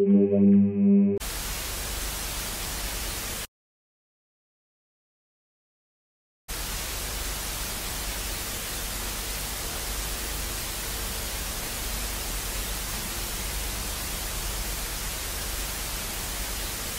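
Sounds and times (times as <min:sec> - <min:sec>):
static hiss: 0:01.2 - 0:03.5, 0:06.5 - 0:16.9.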